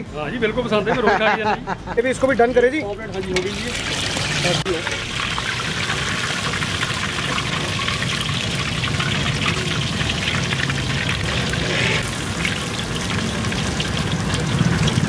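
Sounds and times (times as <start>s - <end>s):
hot oil sizzling and crackling: 2.1s - 15.0s.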